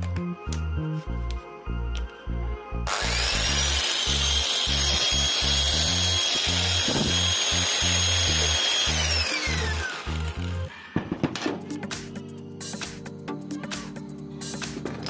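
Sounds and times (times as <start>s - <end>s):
background music with beat: 0.0s - 2.9s, 10.7s - 15.0s
angle grinder motor whining: 2.8s - 11.0s.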